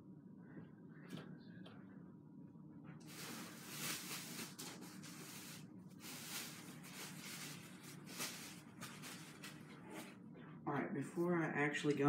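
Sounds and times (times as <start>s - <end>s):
packaging rustling: 3.0s - 10.2s.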